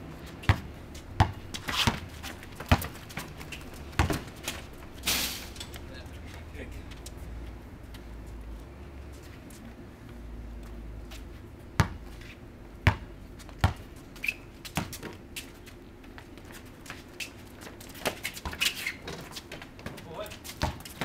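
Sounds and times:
sneakers scuffing: 0.3s - 4.7s
basketball bouncing on concrete: 0.4s - 4.7s, 11.8s - 12.1s, 12.8s - 13.9s, 14.6s - 15.2s, 17.6s - 21.0s.

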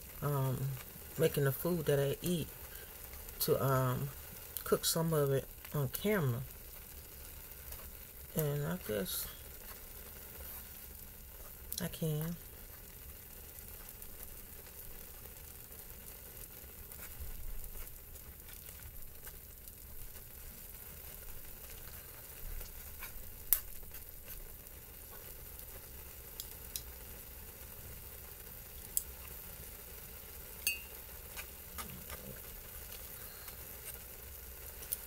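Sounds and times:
noodles sizzling in a pan: 0.0s - 35.0s
chopsticks clicking on a pan: 26.4s - 26.9s, 30.6s - 32.3s.

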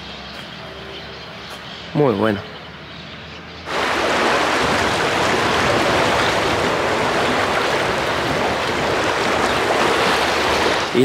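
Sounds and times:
stream water rushing: 3.7s - 11.0s.

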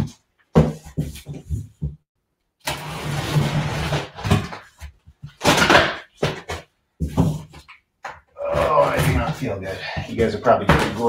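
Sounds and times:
cardboard scraping and rustling: 2.7s - 7.6s.

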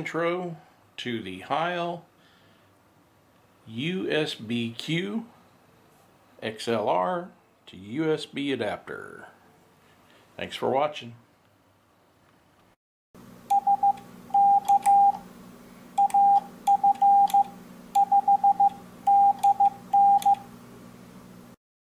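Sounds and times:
low steady hum: 13.2s - 21.6s
morse code beeps: 13.5s - 15.2s, 16.0s - 20.4s.

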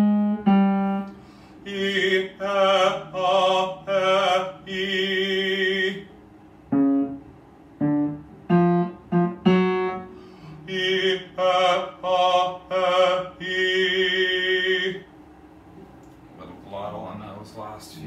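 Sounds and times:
man singing vocal exercises: 1.6s - 6.1s, 10.6s - 15.0s.

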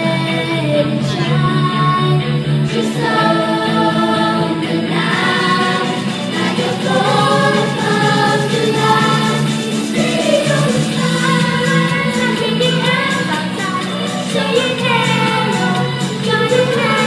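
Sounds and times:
group singing in harmony: 1.6s - 17.0s.

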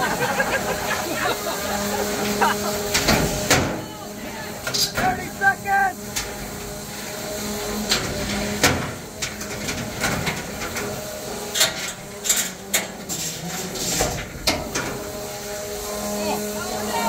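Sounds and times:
crowd chatter: 0.0s - 6.1s, 15.4s - 17.0s
robots clanking and banging: 7.8s - 15.0s.

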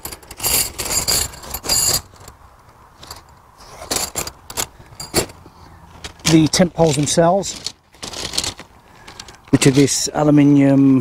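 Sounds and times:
metal tent pegs jangling: 0.0s - 2.4s, 3.0s - 10.3s
nylon bag rustling: 5.0s - 10.1s.

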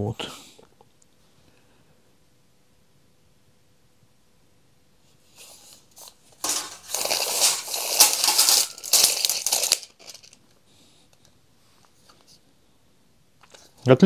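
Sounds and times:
tape measure blade retracting: 6.4s - 9.8s.

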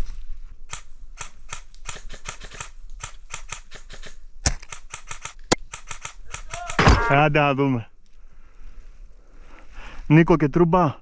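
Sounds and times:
dry clicks and crackles: 0.7s - 6.8s
airsoft rifle shot: 6.7s - 7.3s.

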